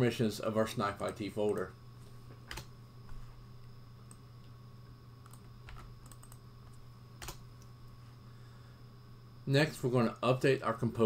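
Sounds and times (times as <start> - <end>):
low electrical hum: 0.0 - 11.0
keyboard keystrokes: 5.2 - 6.4.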